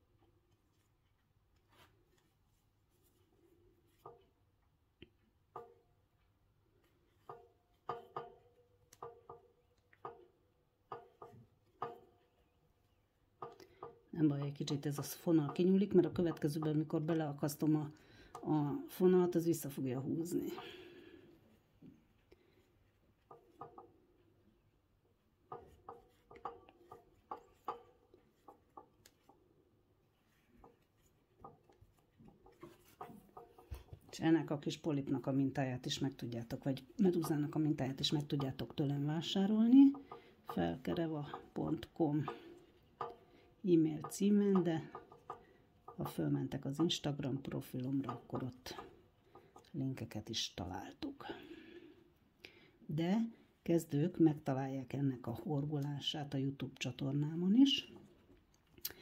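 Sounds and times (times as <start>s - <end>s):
crochet hook ticking on yarn: 7.1s - 12.5s, 13.3s - 20.9s, 22.8s - 24.1s, 25.4s - 29.4s, 30.3s - 51.4s.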